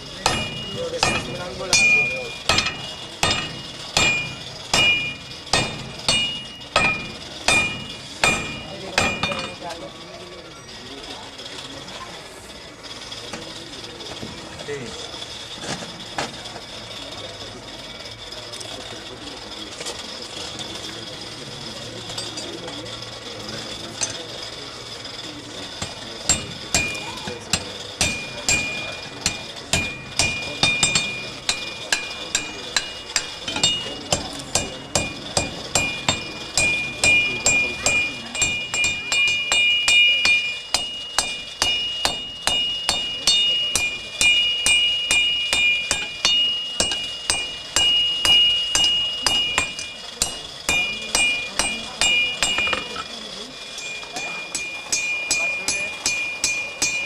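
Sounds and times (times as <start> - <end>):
hammer striking iron on anvil: 0.0 - 9.8, 24.0 - 24.2, 25.8 - 57.0
anvil ringing: 0.0 - 10.2, 23.7 - 24.4, 25.7 - 57.0.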